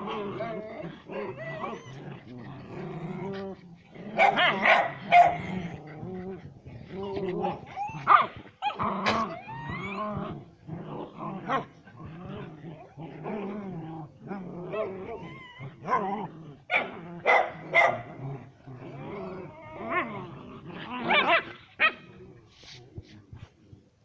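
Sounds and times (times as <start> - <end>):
dogs barking and growling: 0.0 - 23.1
dogs whimpering and yipping: 1.1 - 2.4, 6.4 - 10.5, 14.8 - 16.1.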